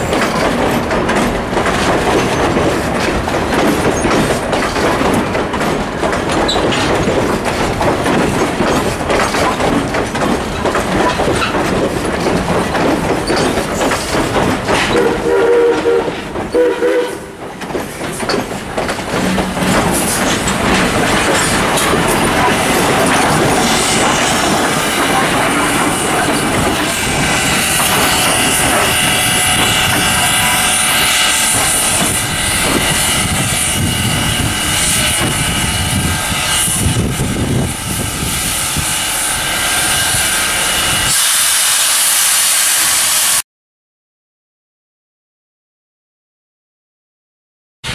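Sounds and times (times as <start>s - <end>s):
train wheels clicking over rail joints: 0.0s - 42.2s
held tones of locomotive: 0.0s - 43.4s
steam locomotive chime whistle: 15.0s - 17.4s.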